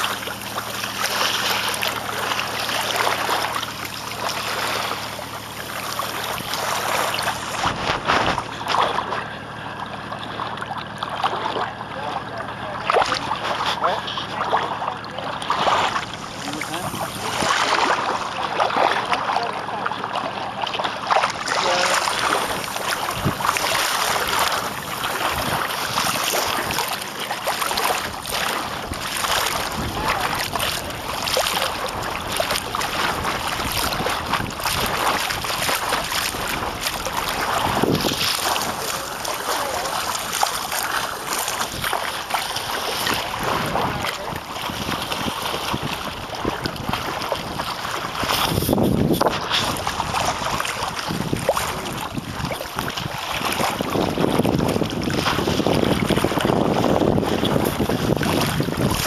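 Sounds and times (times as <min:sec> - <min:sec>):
water splashing against boat hull: 0:00.0 - 0:59.0
wind gusting over microphone: 0:21.7 - 0:26.8, 0:28.4 - 0:40.4, 0:43.0 - 0:59.0.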